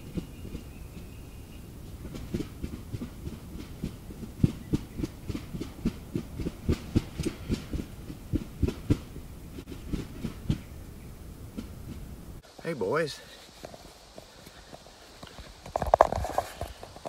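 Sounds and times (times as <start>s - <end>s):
wings beating the ground: 0.0s - 17.0s.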